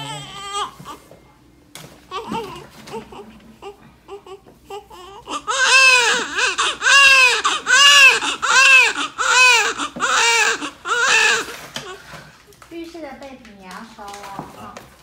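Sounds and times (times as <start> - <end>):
newborn baby crying: 0.0 - 1.1, 2.1 - 12.0.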